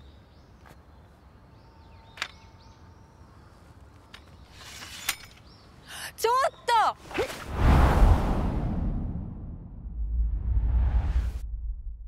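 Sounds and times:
faint birds chirping: 0:00.0 - 0:07.0
rising swish: 0:07.4 - 0:12.0.

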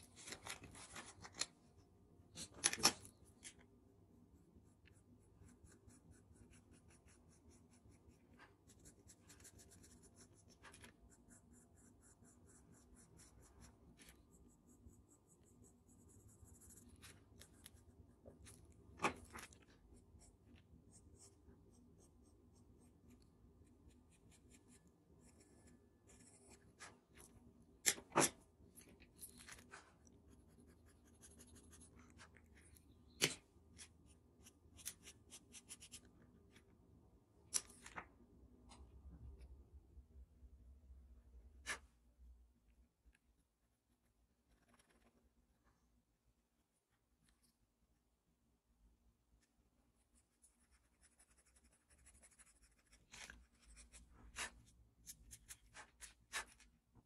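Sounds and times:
pencil scratching on paper: 0:04.3 - 0:27.3, 0:29.5 - 0:36.1, 0:49.4 - 0:56.7.

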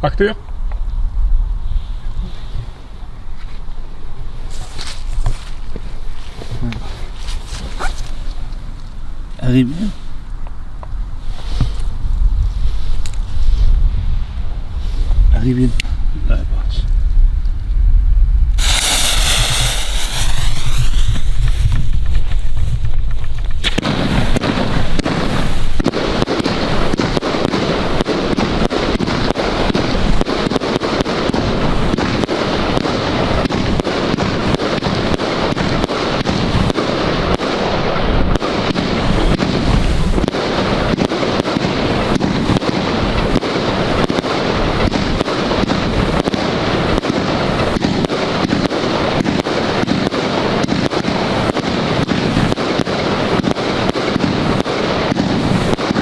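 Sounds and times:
firework cake launches and bursts: 0:18.5 - 0:56.0.

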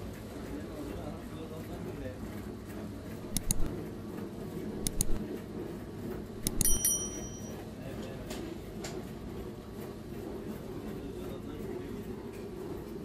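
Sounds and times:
metallic clink: 0:06.4 - 0:07.6.

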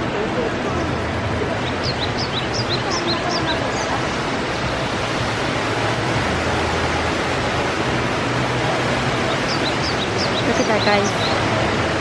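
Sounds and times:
falling water rushing: 0:00.0 - 0:12.0
high bird chirps: 0:01.6 - 0:03.9, 0:09.3 - 0:11.4.

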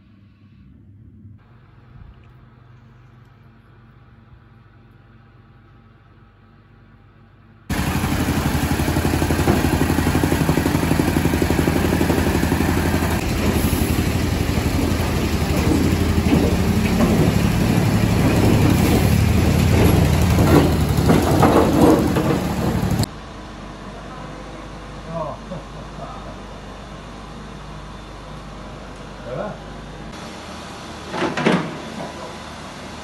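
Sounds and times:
machinery engine chugging: 0:07.7 - 0:23.1
metal clanks: 0:14.9 - 0:23.1.

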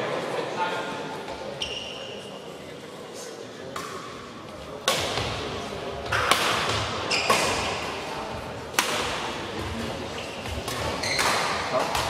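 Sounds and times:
rackets striking shuttlecock: 0:04.8 - 0:05.4, 0:06.0 - 0:08.0, 0:08.7 - 0:09.8, 0:10.4 - 0:12.0.

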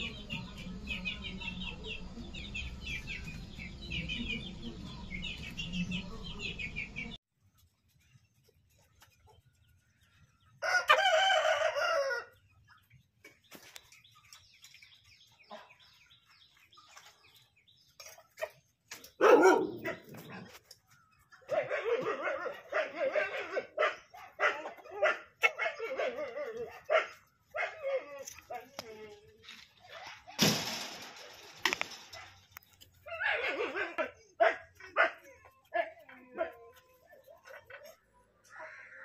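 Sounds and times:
chicken calls: 0:08.7 - 0:28.8
rooster crowing: 0:10.6 - 0:12.3.

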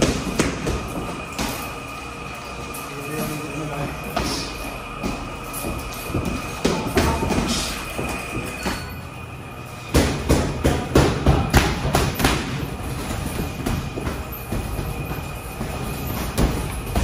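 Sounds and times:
gloved punches on bags: 0:00.0 - 0:01.7, 0:09.9 - 0:17.0
gym background noise: 0:00.0 - 0:17.0.

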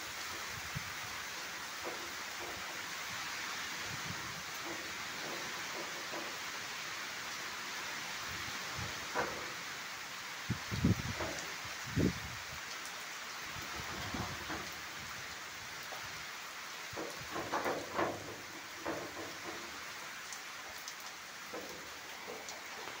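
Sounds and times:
rain falling: 0:00.0 - 0:23.0
splashes or knocks: 0:16.9 - 0:20.8.

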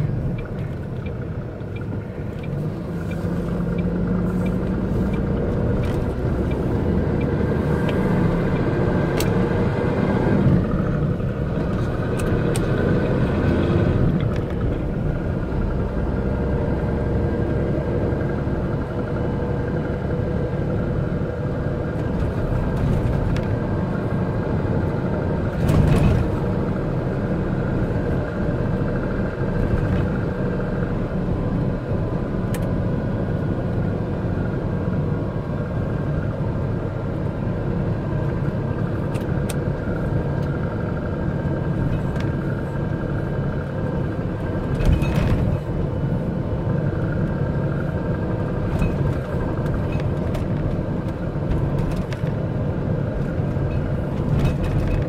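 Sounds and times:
diesel truck engine: 0:00.0 - 0:55.0
road noise: 0:00.0 - 0:55.0
cab rattles: 0:44.5 - 0:45.8, 0:53.1 - 0:55.0.

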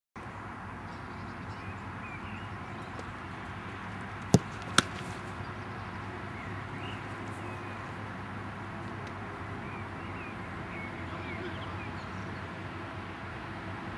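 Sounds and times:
outdoor background noise: 0:00.2 - 0:13.9
football being kicked: 0:04.2 - 0:05.1
ball being stopped: 0:04.2 - 0:05.4.

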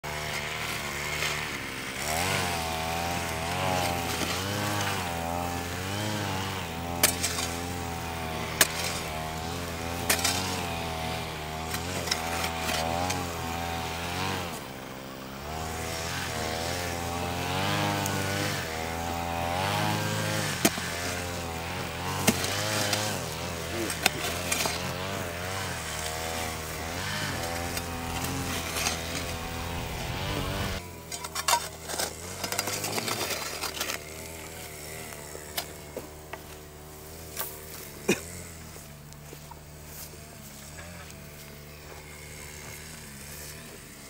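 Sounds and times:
engine running: 0:00.0 - 0:44.0.

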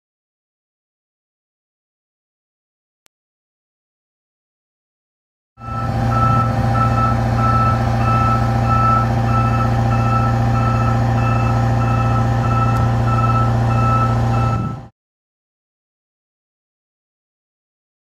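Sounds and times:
motion alarm beeping: 0:05.6 - 0:14.8
engine droning: 0:05.6 - 0:14.9.

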